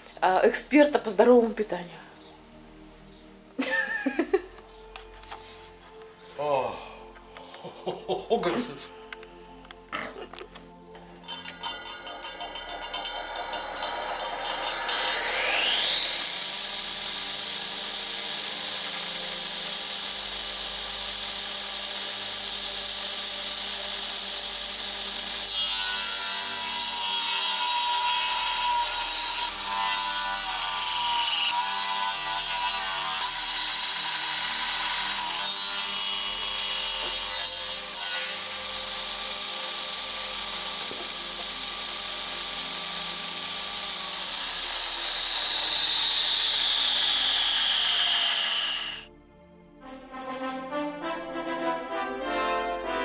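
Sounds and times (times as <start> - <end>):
table saw blade whining: 10.9 - 49.1
saw cutting wooden board: 11.2 - 49.1.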